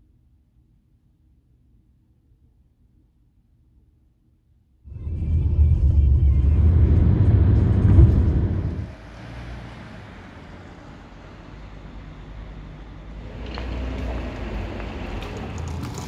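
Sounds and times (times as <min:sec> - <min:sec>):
road rumble inside moving car: 0:04.9 - 0:16.0.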